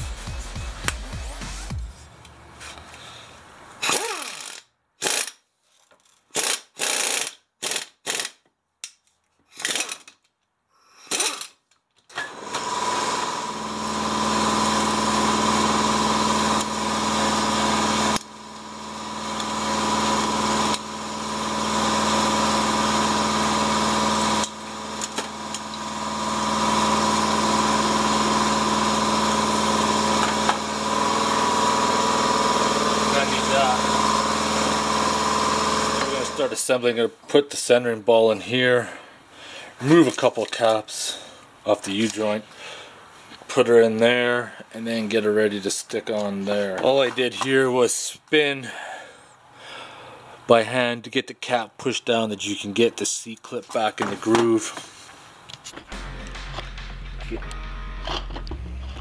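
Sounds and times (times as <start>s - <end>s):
pneumatic air hammer bursts: 3.8s - 5.5s, 6.3s - 8.4s, 9.5s - 10.1s, 11.0s - 36.5s
steady motor hum: 12.3s - 36.6s.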